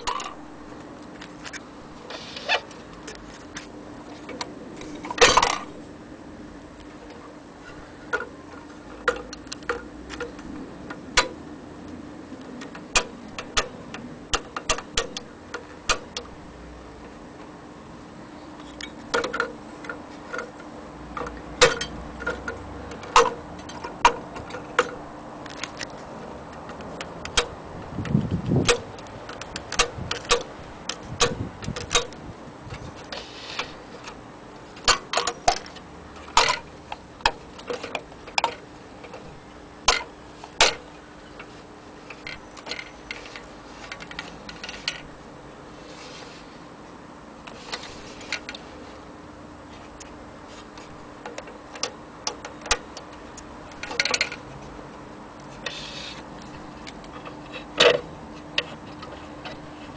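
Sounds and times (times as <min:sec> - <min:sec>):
faint steady hum: 0:00.0 - 0:59.9
clicks and knocks on metal projector: 0:12.6 - 0:16.3, 0:18.7 - 0:20.6, 0:21.2 - 0:25.9, 0:26.6 - 0:32.9, 0:34.8 - 0:39.3, 0:39.9 - 0:41.5, 0:50.8 - 0:54.4.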